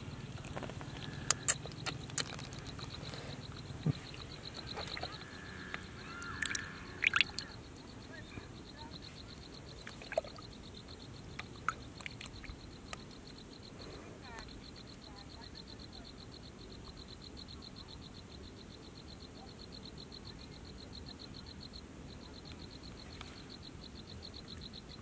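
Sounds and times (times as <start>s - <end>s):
muddy water dripping and splashing: 3.9s - 5.2s, 6.2s - 7.5s.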